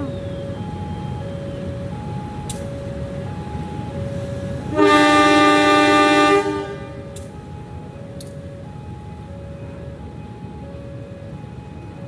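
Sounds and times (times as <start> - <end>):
locomotive horn blast: 4.7 - 7.0.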